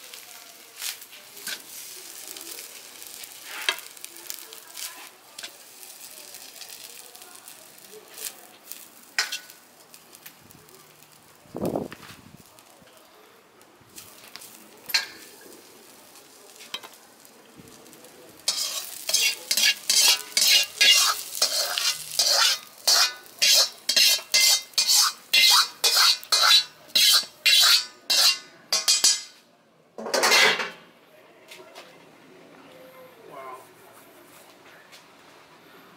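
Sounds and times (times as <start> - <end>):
spatula scraping wok: 0.8 - 10.2, 18.4 - 29.4.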